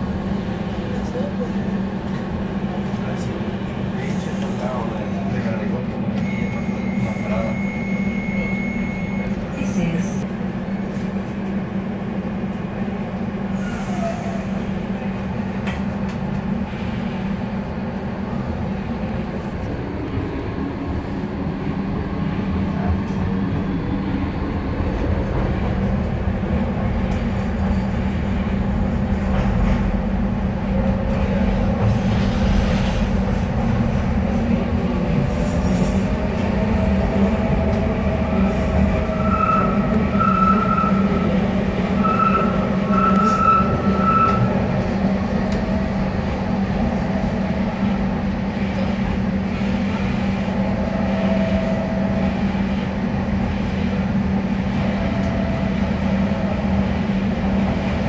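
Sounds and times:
train hum: 0.0s - 58.0s
wheels rumbling on track: 0.0s - 58.0s
high wheel squeals: 39.0s - 41.4s, 42.0s - 44.6s.

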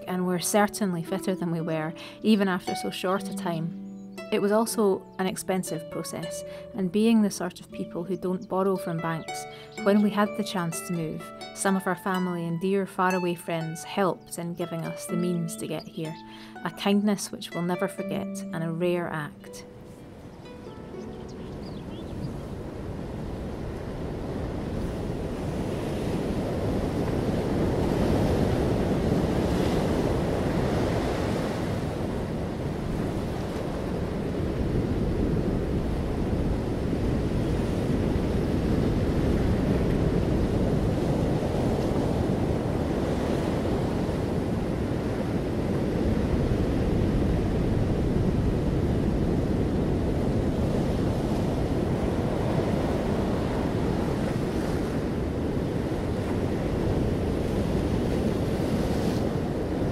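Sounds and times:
wind rumble on microphone: 21.2s - 59.9s.

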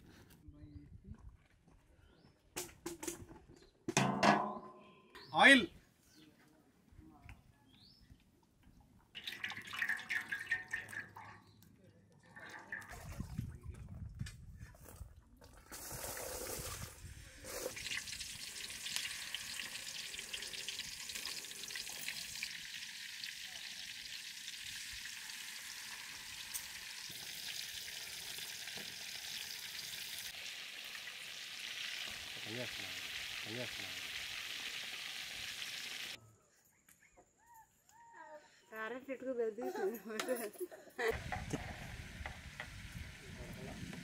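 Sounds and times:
fish sizzling in hot oil: 17.4s - 36.2s, 41.1s - 43.4s.

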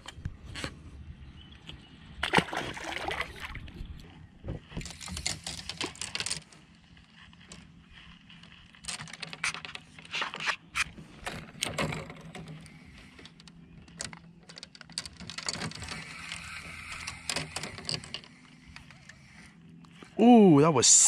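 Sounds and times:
fishing reel whirring: 15.5s - 19.6s.

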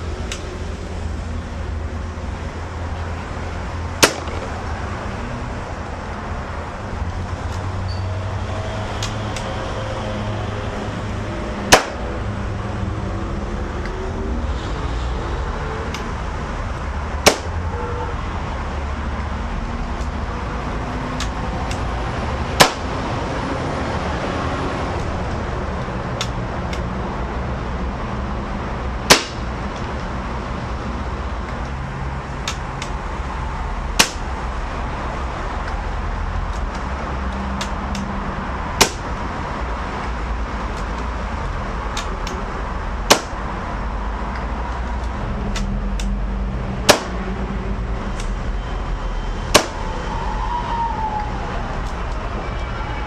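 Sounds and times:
air rifle shots: 4.0s - 4.6s, 11.7s - 12.1s, 17.2s - 17.6s, 22.6s - 22.9s, 29.1s - 29.5s, 46.9s - 47.2s.

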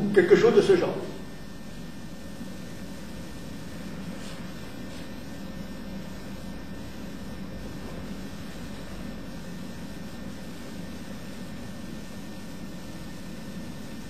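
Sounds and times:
room hum and hiss: 0.0s - 14.0s.

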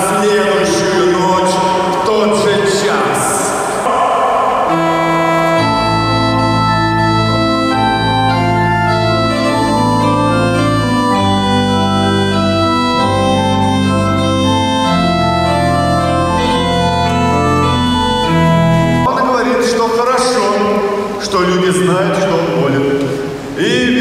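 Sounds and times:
organ playing slow chords: 0.0s - 19.1s.

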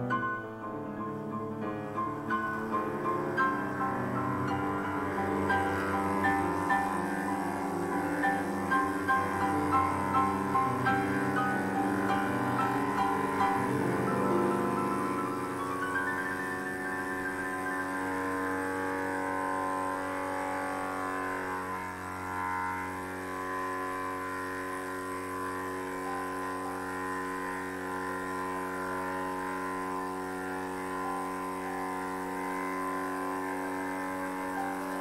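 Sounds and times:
milling machine cutting metal: 0.0s - 35.0s.

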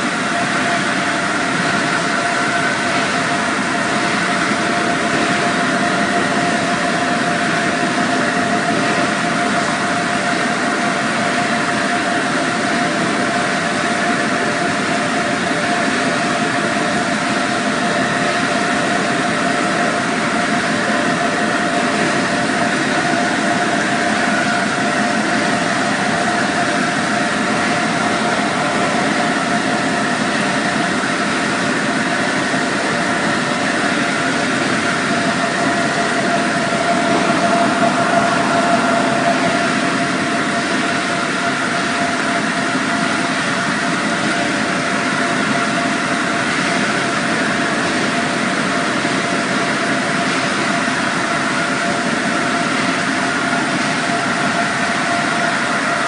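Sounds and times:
machinery humming: 0.0s - 56.0s
rushing noise: 21.0s - 45.0s.

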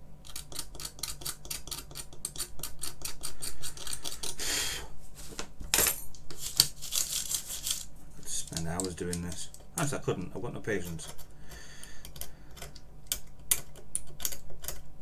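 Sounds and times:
tool clicking on keyboard frame: 0.2s - 4.4s.

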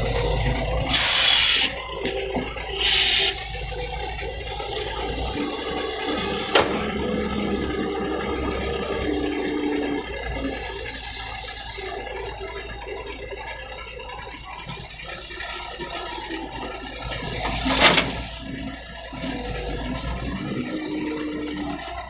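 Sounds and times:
diesel engine running: 0.0s - 22.0s
hydraulics whining: 0.0s - 22.0s.

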